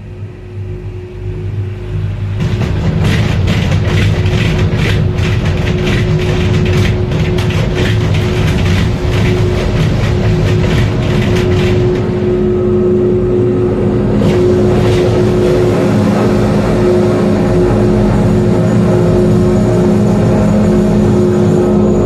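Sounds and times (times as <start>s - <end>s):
machinery hum: 0.0s - 22.0s
fast rattling clicks: 2.4s - 12.2s.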